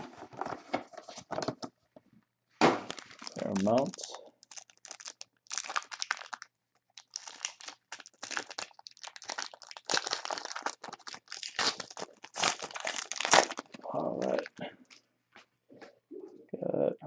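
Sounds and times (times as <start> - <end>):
foil wrapper crinkling and tearing: 2.8 - 14.5.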